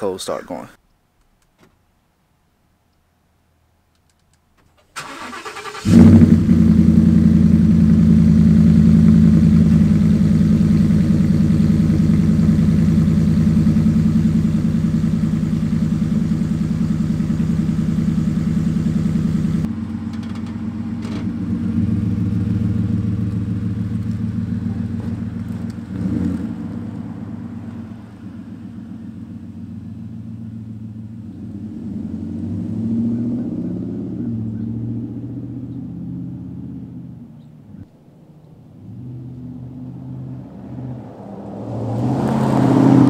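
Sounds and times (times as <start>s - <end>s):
truck engine starting and idling: 4.2s - 36.8s
truck pulling away: 5.0s - 37.3s, 38.7s - 43.0s.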